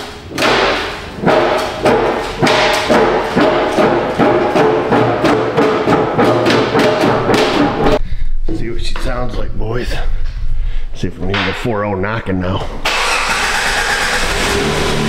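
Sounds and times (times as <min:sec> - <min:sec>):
music with percussive beat: 0:01.2 - 0:08.0.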